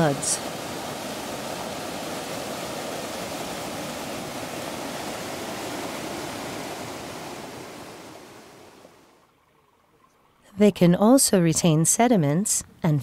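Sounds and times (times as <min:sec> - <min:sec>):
floodwater rushing: 0:00.0 - 0:10.0.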